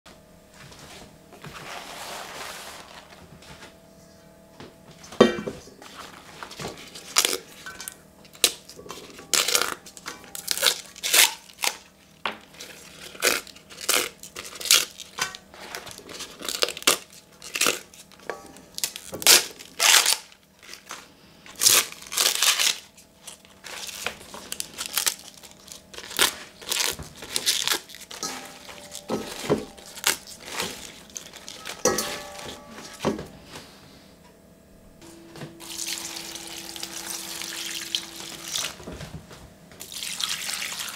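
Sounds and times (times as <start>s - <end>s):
leaves being torn by hand: 12.6s - 15.2s, 16.0s - 21.0s, 21.6s - 29.0s.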